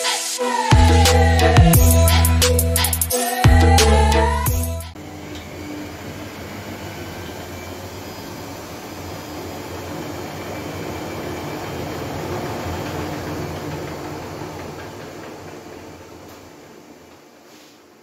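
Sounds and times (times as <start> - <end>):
washing machine running: 4.5 - 18.0.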